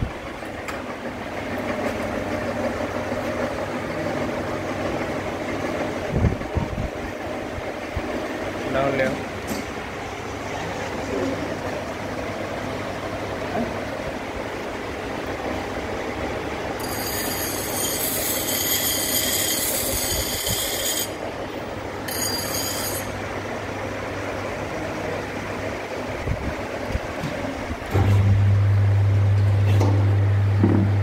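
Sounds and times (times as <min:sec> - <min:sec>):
grinder motor hum: 0:16.5 - 0:23.8
grinding wheel screeching: 0:16.8 - 0:21.2, 0:22.0 - 0:23.3.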